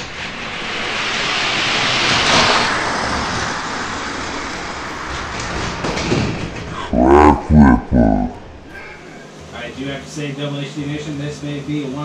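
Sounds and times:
toy cars rolling down plastic track: 0:00.0 - 0:06.6.

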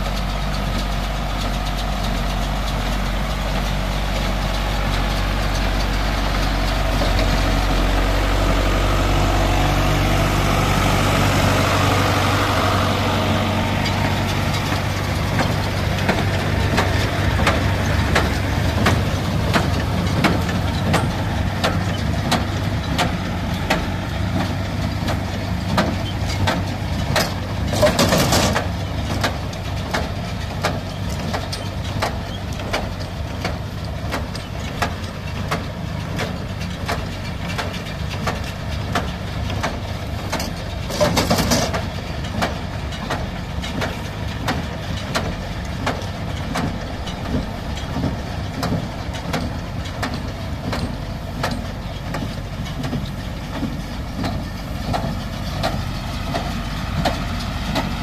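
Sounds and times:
tractor engine running: 0:00.0 - 0:58.0
baler knocking rhythmically: 0:00.1 - 0:27.7.

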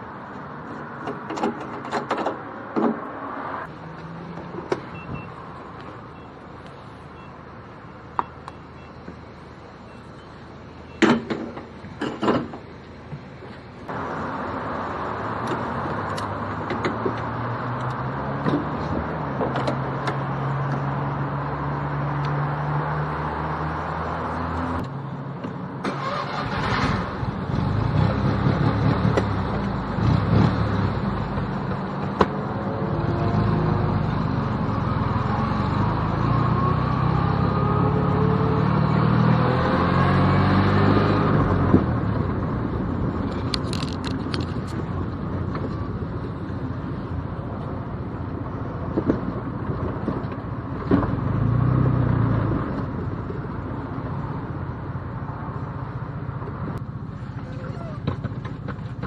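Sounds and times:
small car engine accelerating: 0:25.8 - 0:31.7, 0:32.4 - 0:42.5.

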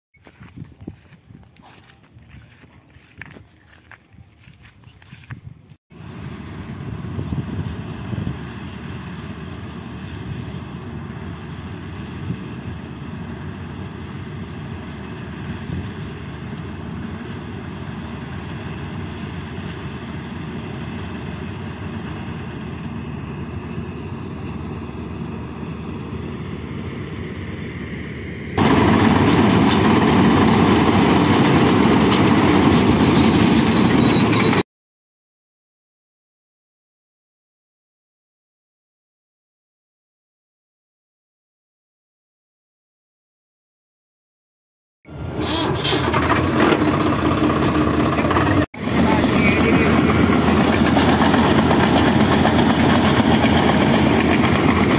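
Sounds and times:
combine harvester engine drone: 0:06.0 - 0:34.6, 0:45.1 - 0:54.9.

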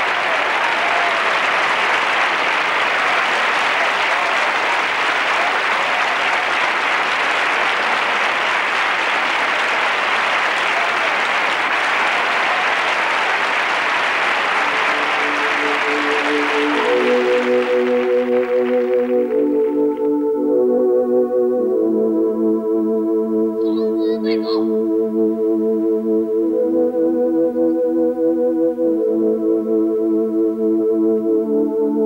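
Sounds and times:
large audience applauding: 0:00.0 - 0:20.5
music with long held notes: 0:13.1 - 0:32.0.

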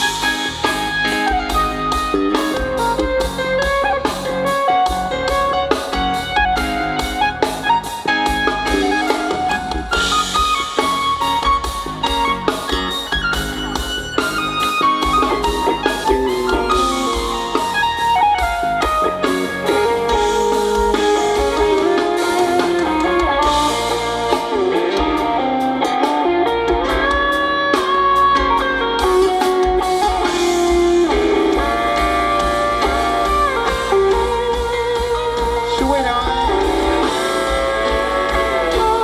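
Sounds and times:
electric guitar melody: 0:00.0 - 0:39.0
heavy bass: 0:00.0 - 0:39.0
live band music: 0:00.0 - 0:39.0.

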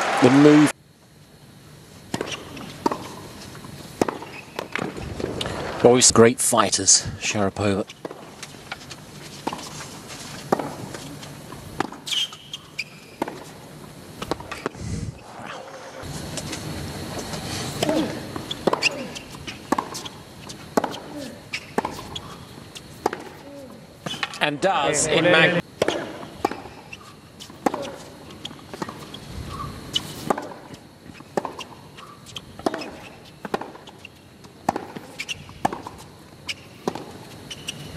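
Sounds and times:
tennis ball struck by rackets: 0:02.1 - 0:03.2, 0:04.0 - 0:04.9, 0:10.5 - 0:10.9, 0:11.8 - 0:12.2, 0:13.2 - 0:13.5, 0:17.8 - 0:20.0, 0:20.7 - 0:21.1, 0:23.0 - 0:23.4, 0:25.8 - 0:26.8, 0:30.2 - 0:30.6, 0:31.4 - 0:31.7, 0:32.6 - 0:33.9, 0:34.6 - 0:36.0, 0:36.8 - 0:37.2
tennis ball bouncing on court: 0:02.1 - 0:03.3, 0:04.0 - 0:05.0, 0:08.0 - 0:08.3, 0:10.5 - 0:11.1, 0:11.8 - 0:13.6, 0:14.2 - 0:14.8, 0:17.8 - 0:23.4, 0:25.8 - 0:37.8
tennis ball off racket strings: 0:08.0 - 0:11.1, 0:19.7 - 0:20.0.

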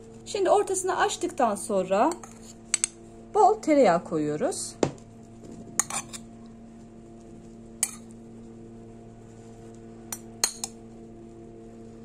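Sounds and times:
faint steady hum: 0:00.0 - 0:12.0
metal spoon clinking dishes: 0:02.1 - 0:02.9, 0:05.8 - 0:06.2, 0:07.8 - 0:08.1, 0:10.1 - 0:10.8.

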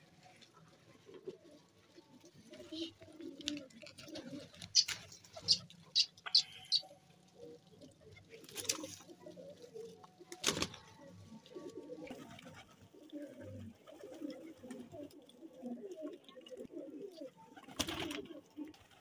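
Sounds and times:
pigeons cooing: 0:00.0 - 0:19.0
wings flapping: 0:03.4 - 0:06.8, 0:08.3 - 0:09.1, 0:10.3 - 0:11.0, 0:17.6 - 0:19.0.

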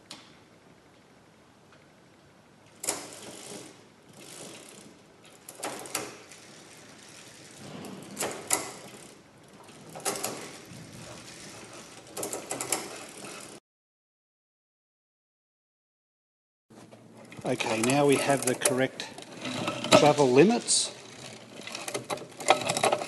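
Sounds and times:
bicycle chain rattling: 0:02.7 - 0:13.6, 0:17.2 - 0:23.0
chain clattering between cogs: 0:02.9 - 0:13.6, 0:17.3 - 0:23.0.

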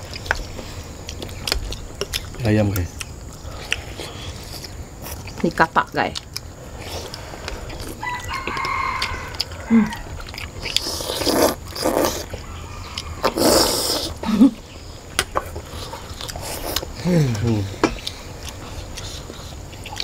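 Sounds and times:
people slurping noodles: 0:10.6 - 0:12.4, 0:13.2 - 0:14.6, 0:15.4 - 0:20.0.

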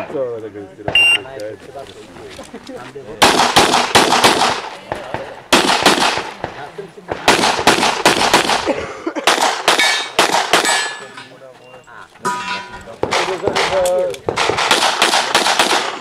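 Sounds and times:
pistol shots in rapid strings: 0:03.2 - 0:04.7, 0:05.5 - 0:10.9, 0:13.0 - 0:16.0.

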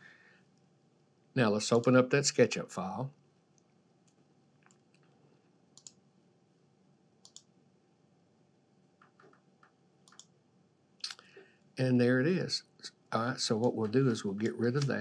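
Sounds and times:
faint computer mouse clicks: 0:05.8 - 0:06.0, 0:07.2 - 0:07.5, 0:09.0 - 0:10.3.

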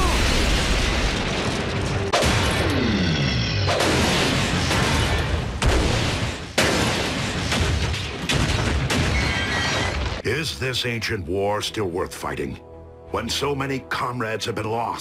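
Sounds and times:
blasts and impacts: 0:00.0 - 0:10.2
background music: 0:10.2 - 0:15.0.

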